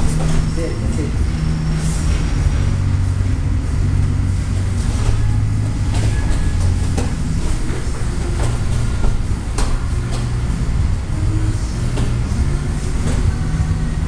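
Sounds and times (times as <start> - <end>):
steady low rumble: 0.0 - 14.0
thumps and slaps on mats: 4.8 - 10.7, 11.6 - 13.6.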